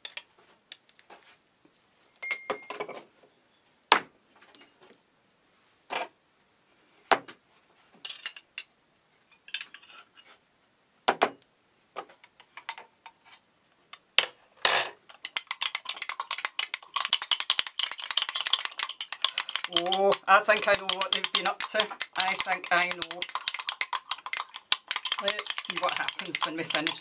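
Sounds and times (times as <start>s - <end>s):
glass and spoon clinking: 2.0s - 2.9s, 14.7s - 27.0s
spoon stirring in glass: 15.2s - 27.0s.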